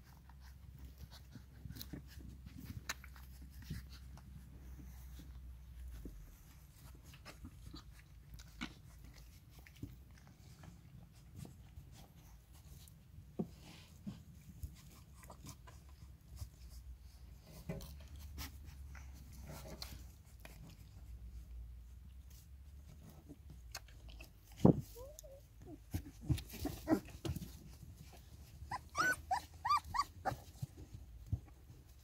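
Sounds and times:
puppies suckling: 23.0 - 32.0.

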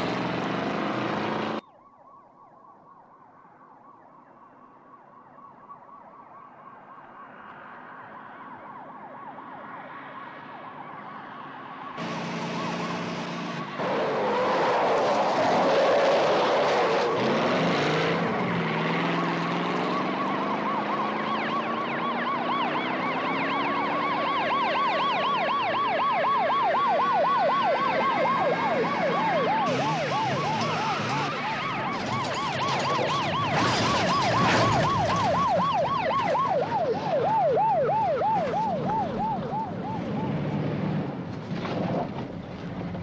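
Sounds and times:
car engines running: 0.0 - 1.6, 12.0 - 43.0
police sirens wailing: 0.0 - 41.3
tyres on road: 0.0 - 43.0.

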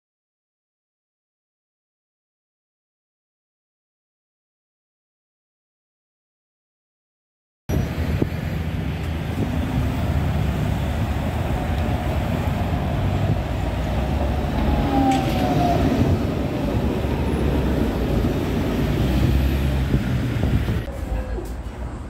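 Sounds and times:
tram rumbling past on rails: 7.7 - 22.0.

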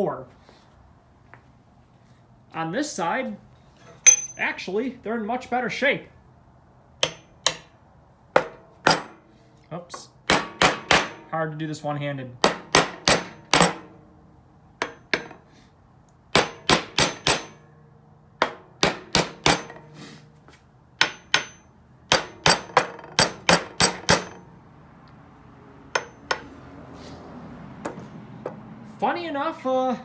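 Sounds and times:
hammer striking metal: 4.0 - 4.4, 7.0 - 9.3, 10.2 - 11.3, 12.4 - 14.0, 14.8 - 15.5, 16.3 - 17.8, 18.4 - 20.0, 21.0 - 24.5, 25.9 - 26.6.

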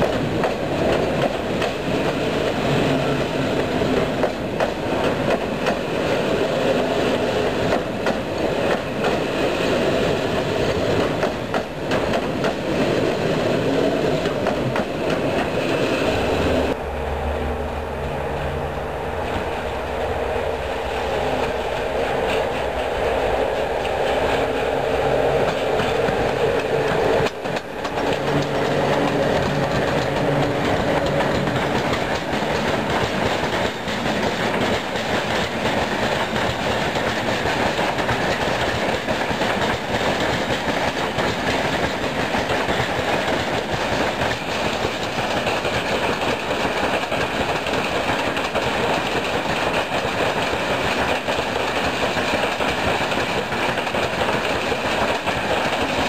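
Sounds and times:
wagon wheels clacking over rail joints: 0.0 - 16.2, 25.4 - 56.0
electric locomotive hum: 0.0 - 56.0.

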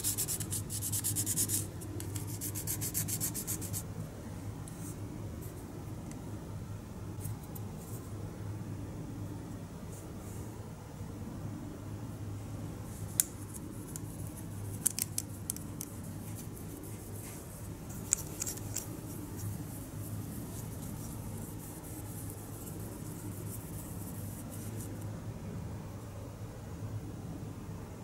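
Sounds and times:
steady low hum: 0.0 - 28.0
cloth wiping plastic: 14.2 - 25.0
plastic model clicking: 14.8 - 15.9.

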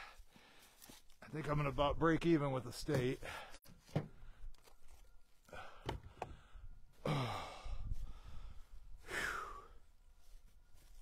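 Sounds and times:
man sighing: 5.5 - 8.3.

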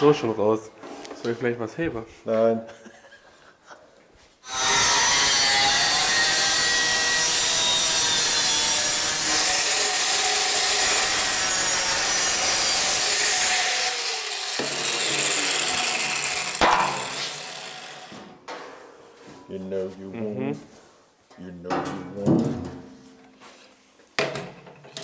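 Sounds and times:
power tool cutting sheet metal: 4.4 - 18.3.

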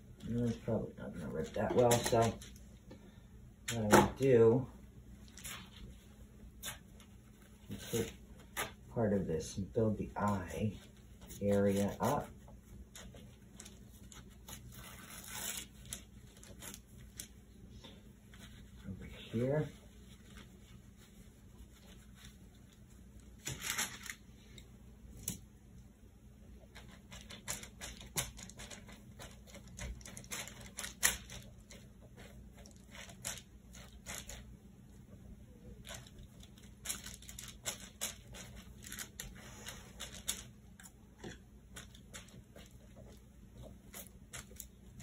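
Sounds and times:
paper towel and plastic crinkling: 0.2 - 2.7, 5.2 - 24.6, 35.7 - 45.0.

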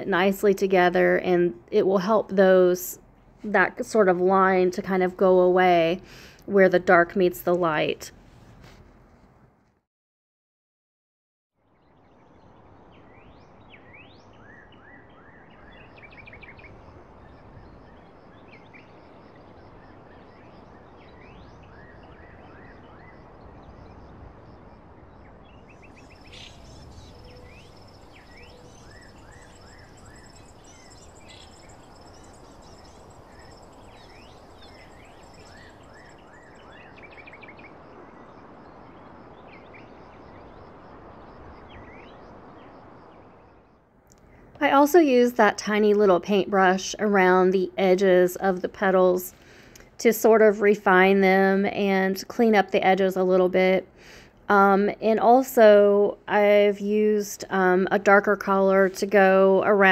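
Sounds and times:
steady background hiss: 12.2 - 59.9
birds chirping: 25.1 - 43.8.

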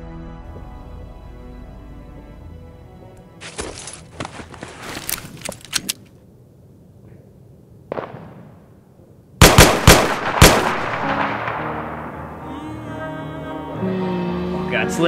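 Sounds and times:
rifle gunshots: 9.4 - 12.4.

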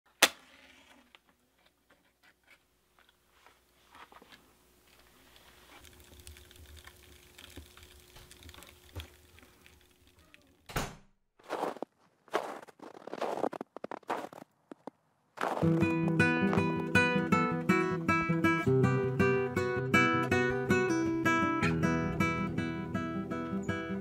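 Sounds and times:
faint steady hum: 0.8 - 10.6
fire crackling and popping: 4.9 - 10.7.

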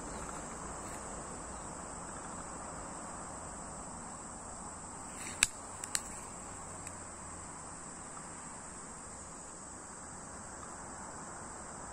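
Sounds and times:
insects chorus: 0.0 - 11.9
sharp clicks: 5.2 - 6.2.

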